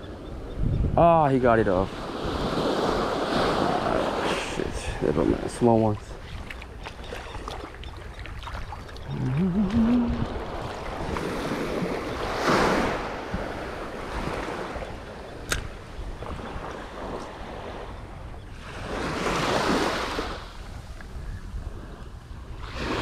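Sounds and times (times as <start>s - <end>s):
wind on microphone: 0.0s - 1.3s, 1.9s - 23.0s
waves breaking on beach: 1.7s - 17.9s, 18.5s - 21.0s, 21.6s - 23.0s
sharp click: 15.4s - 15.8s.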